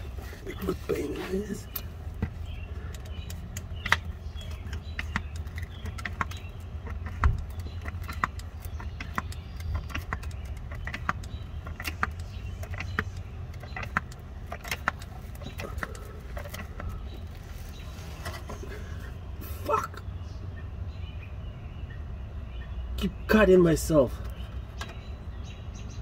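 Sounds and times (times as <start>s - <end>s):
steady low hum: 0.0s - 26.0s
hand pump plunger clicking: 1.7s - 17.4s.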